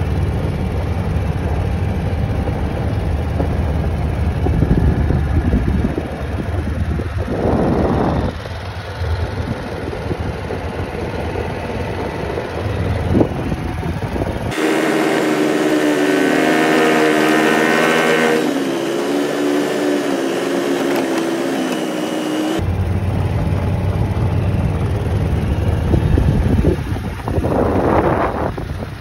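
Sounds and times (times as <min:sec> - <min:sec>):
engine hum with wavering pitch: 0:00.0 - 0:29.0
vehicle rumble: 0:00.0 - 0:29.0
wind on microphone: 0:04.3 - 0:08.5, 0:09.4 - 0:14.6, 0:25.6 - 0:29.0.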